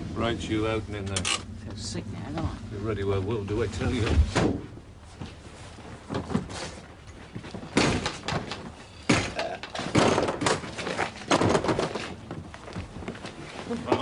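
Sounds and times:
metal door clunks and knocks: 7.7s - 12.0s.

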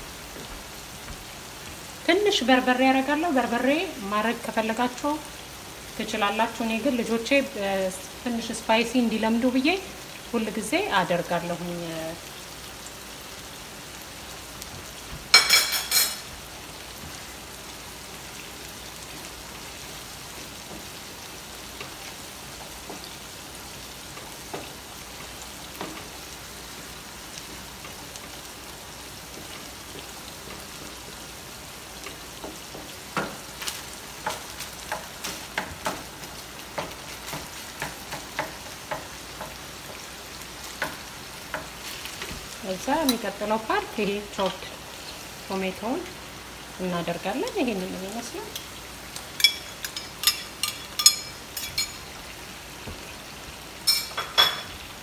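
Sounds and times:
vegetables sizzling in a frying pan: 0.0s - 55.0s
spoon knocking and scraping in pan: 15.1s - 16.3s, 24.1s - 26.2s, 32.0s - 43.2s.

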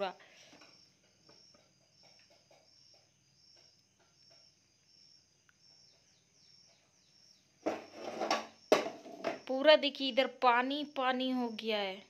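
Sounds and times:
loud knock: 7.6s - 9.4s.

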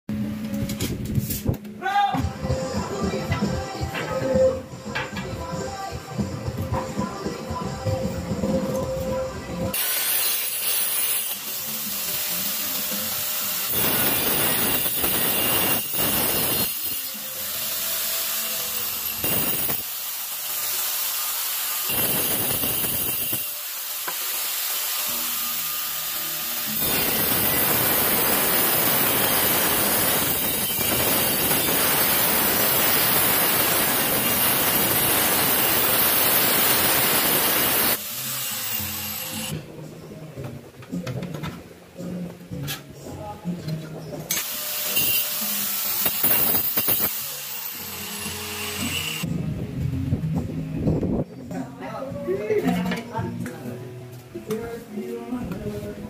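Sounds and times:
angle grinder cutting tile: 9.7s - 39.6s, 44.3s - 49.3s.

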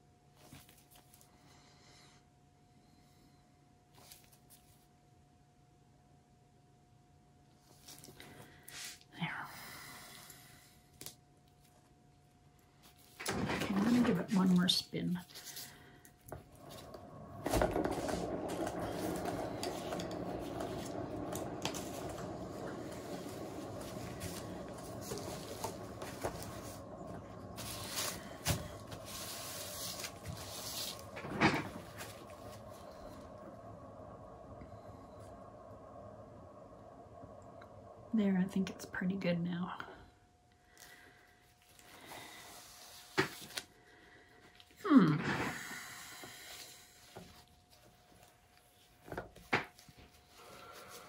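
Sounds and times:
short falling scrape: 15.4s - 35.5s.

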